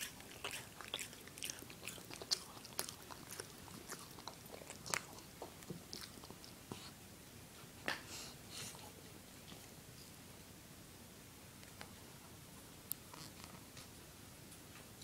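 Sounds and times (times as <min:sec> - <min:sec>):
dog gnawing on a chew: 0:00.0 - 0:06.9, 0:12.9 - 0:13.6.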